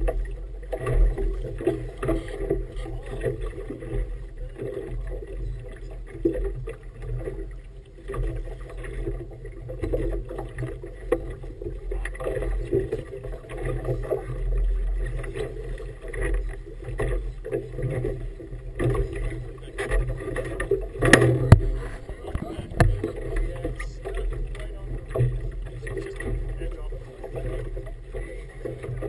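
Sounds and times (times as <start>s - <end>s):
water slapping against boat hull: 0.0s - 29.0s
steady low rumble: 18.2s - 29.0s.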